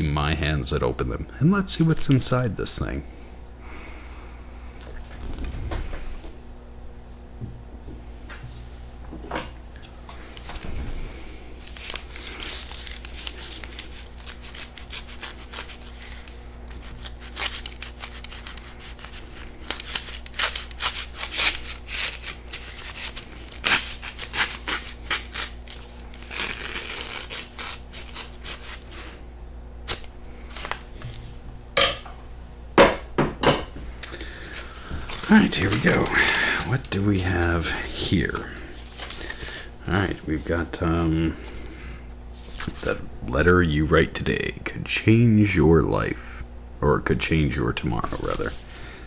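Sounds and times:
paper crinkling and rustling: 0:11.6 - 0:29.1, 0:29.9 - 0:31.2, 0:34.5 - 0:39.6.

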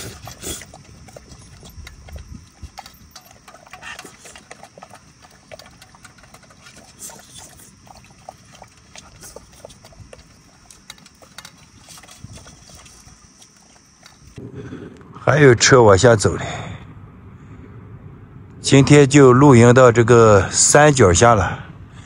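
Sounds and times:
dog chewing: 0:00.0 - 0:14.4.

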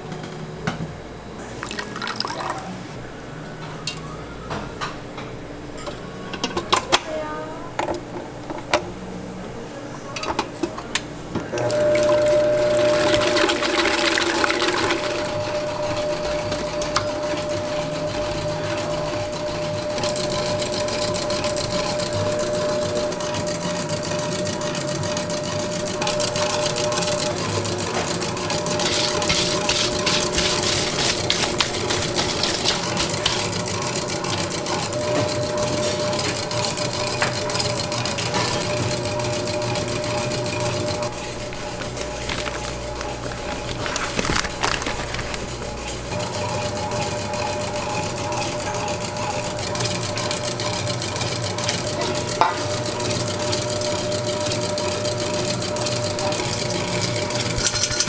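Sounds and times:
stand mixer motor whirring: 0:11.5 - 0:58.0
whisk rattling: 0:11.7 - 0:58.0.

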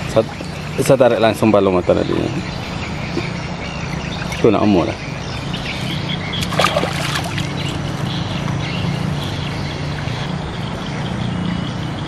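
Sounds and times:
boat engine droning: 0:00.0 - 0:12.0
wet cast net rustling: 0:05.3 - 0:08.0.

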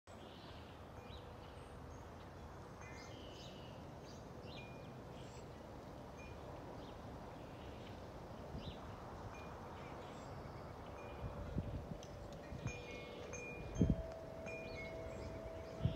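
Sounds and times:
small birds chirping: 0:09.7 - 0:15.9.

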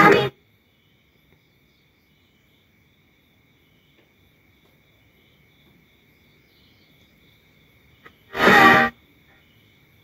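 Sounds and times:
insect-like chirping: 0:00.0 - 0:04.1, 0:04.8 - 0:10.0
steady high whine: 0:08.3 - 0:08.9.

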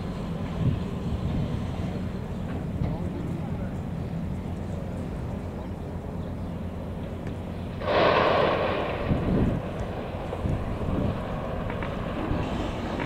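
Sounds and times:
wind rumble on microphone: 0:00.0 - 0:05.8, 0:07.2 - 0:13.0
sudden loud rushing hiss: 0:07.8 - 0:13.0.

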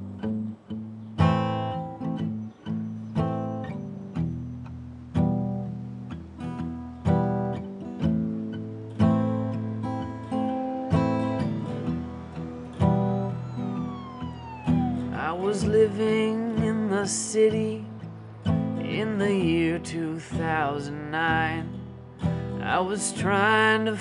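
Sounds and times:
acoustic guitar strumming: 0:00.0 - 0:24.0.

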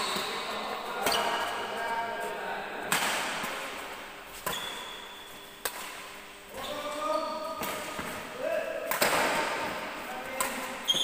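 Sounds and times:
racket hitting shuttlecock: 0:02.9 - 0:06.2, 0:07.5 - 0:11.0.

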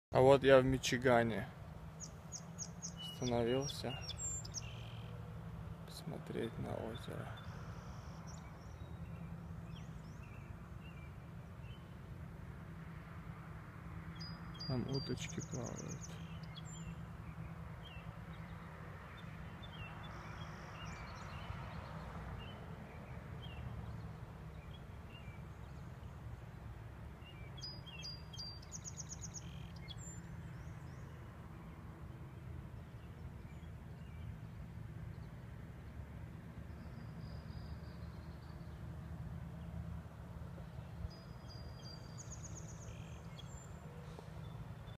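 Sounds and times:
small birds chirping: 0:01.1 - 0:12.0, 0:14.1 - 0:26.4, 0:27.2 - 0:31.3, 0:40.4 - 0:45.0.

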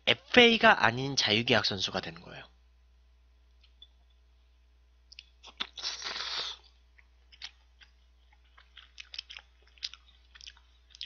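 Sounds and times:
chewing with wet mouth clicks: 0:05.1 - 0:05.8, 0:06.9 - 0:11.0
person slurping noodles: 0:05.5 - 0:06.7.

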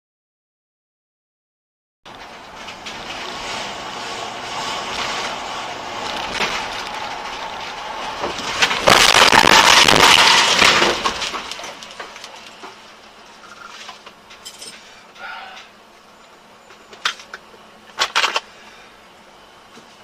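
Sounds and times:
car road noise: 0:02.1 - 0:20.0
debris pelting windshield: 0:02.2 - 0:13.0.

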